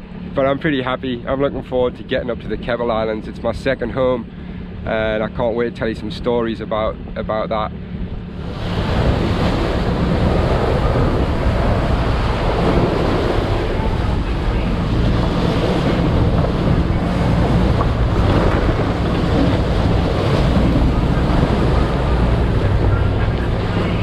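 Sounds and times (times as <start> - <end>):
waves washing past boat: 0.0 - 24.0
wind buffeting microphone: 6.9 - 24.0.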